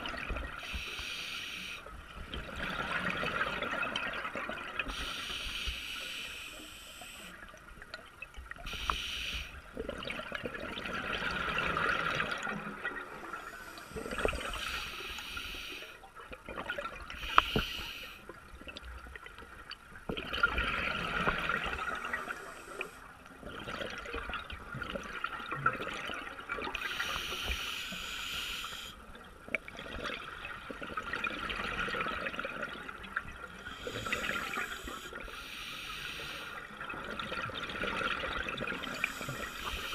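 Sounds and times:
exhaled bubbles gurgling: 0:00.0 - 0:19.2, 0:20.0 - 0:27.4, 0:29.1 - 0:39.9
regulator inhalation hiss: 0:00.6 - 0:01.9, 0:04.9 - 0:07.4, 0:08.7 - 0:09.6, 0:13.4 - 0:16.0, 0:17.2 - 0:18.2, 0:22.1 - 0:23.0, 0:26.8 - 0:29.0, 0:33.6 - 0:36.6, 0:38.9 - 0:39.9.

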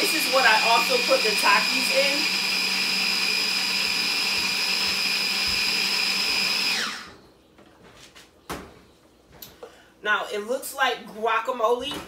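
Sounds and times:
electric food chopper whining: 0:00.0 - 0:07.1.

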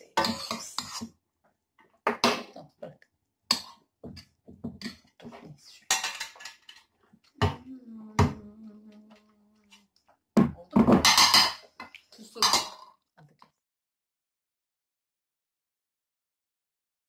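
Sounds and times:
metal spoon scraping pot: 0:00.1 - 0:01.1.

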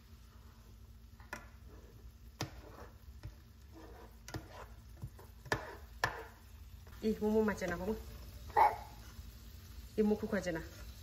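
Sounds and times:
plastic spoon scraping frying pan: 0:01.3 - 0:06.4.

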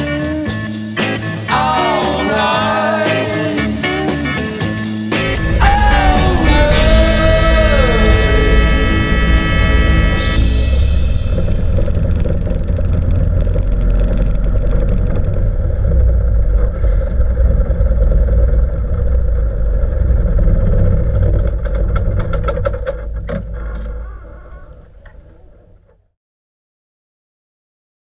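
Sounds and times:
propeller aircraft engine running: 0:04.6 - 0:25.8.

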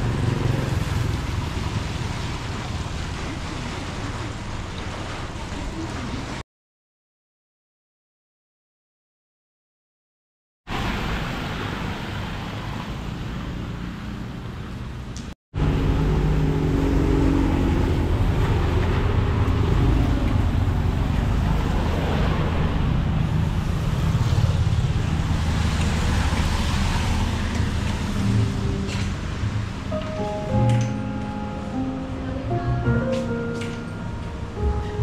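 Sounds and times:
traffic on wet street: 0:00.0 - 0:06.4, 0:10.7 - 0:35.0
vehicle engine humming: 0:12.4 - 0:35.0.

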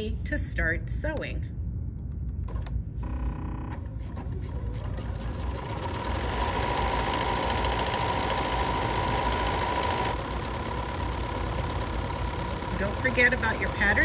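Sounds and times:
sewing machine running: 0:03.9 - 0:14.0.

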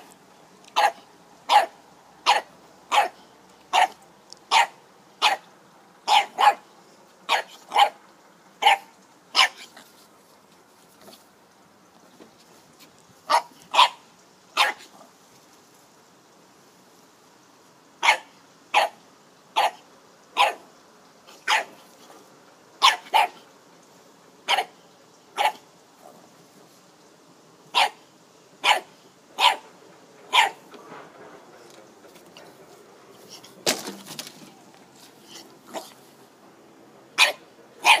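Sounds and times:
puppy barking: 0:00.8 - 0:05.5, 0:06.1 - 0:06.7, 0:07.3 - 0:08.0, 0:08.6 - 0:09.8, 0:13.3 - 0:14.0, 0:14.6 - 0:14.9, 0:18.0 - 0:19.0, 0:19.6 - 0:19.8, 0:20.4 - 0:20.7, 0:21.4 - 0:21.8, 0:22.8 - 0:23.4, 0:24.5 - 0:24.8, 0:25.4 - 0:25.6, 0:27.7 - 0:28.0, 0:28.6 - 0:29.7, 0:30.3 - 0:30.6, 0:37.2 - 0:38.0.

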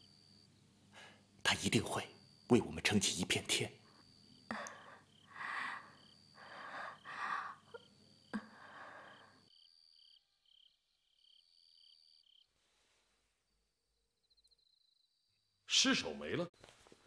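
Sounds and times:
crickets chirping: 0:00.0 - 0:16.5
woman breathing heavily: 0:04.5 - 0:09.5.

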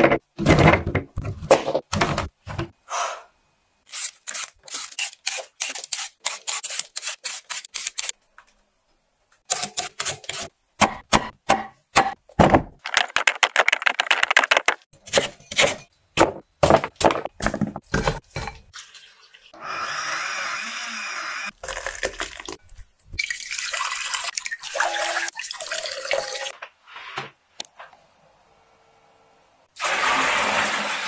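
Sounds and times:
vegetable peeler scraping: 0:03.9 - 0:08.2.

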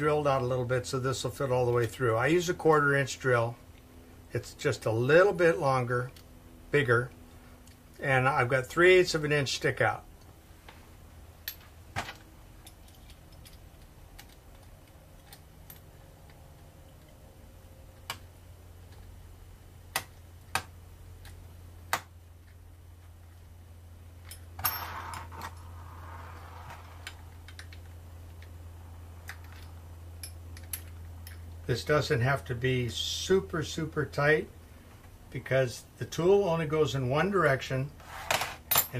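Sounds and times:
steady low hum: 0:00.0 - 0:38.9
metal clicks and clinks: 0:11.4 - 0:17.2, 0:29.2 - 0:31.6.

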